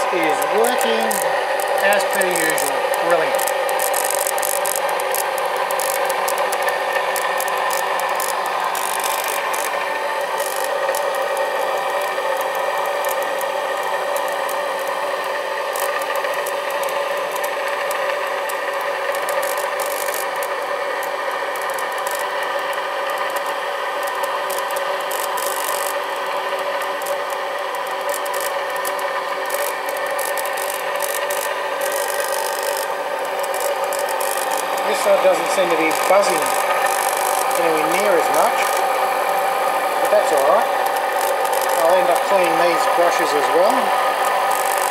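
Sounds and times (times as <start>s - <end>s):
rotary inverter hum-whine: 0.0s - 44.9s
carbon brushes scraping: 29.6s - 44.9s.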